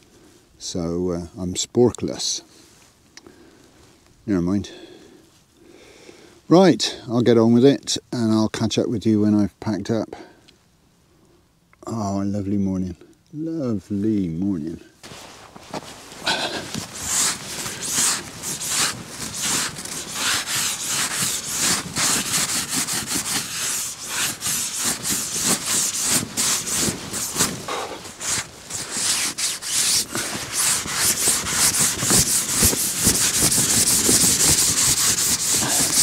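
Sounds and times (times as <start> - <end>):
cloth scraping ice off tent: 15.0 - 36.0.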